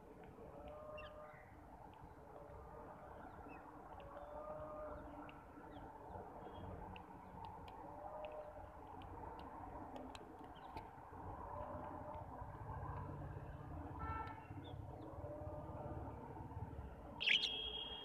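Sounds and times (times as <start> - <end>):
bird chirps: 17.2 - 18.0.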